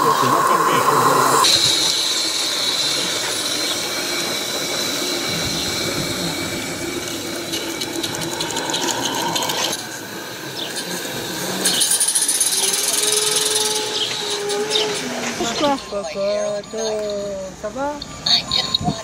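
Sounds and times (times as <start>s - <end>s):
steam hissing: 0.0s - 18.3s
fast mechanical clicking: 1.4s - 15.1s.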